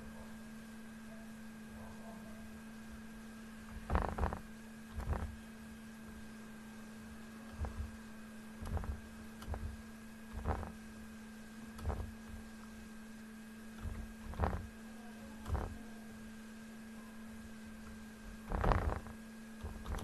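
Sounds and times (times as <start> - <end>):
steady electrical hum: 0.0 - 20.0
computer mouse clicks: 8.6 - 9.7, 18.5 - 20.0.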